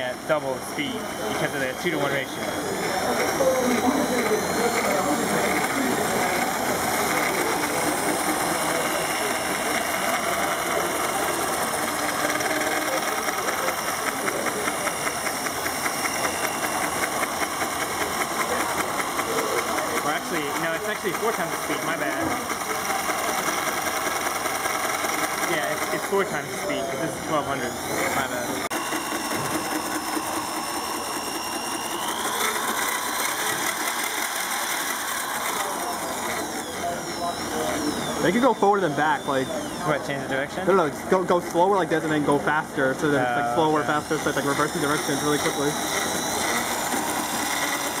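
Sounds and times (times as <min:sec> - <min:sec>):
high motor whine: 0:00.0 - 0:48.0
whirring rattle of gears: 0:00.0 - 0:48.0
fast even ticking: 0:00.7 - 0:26.8.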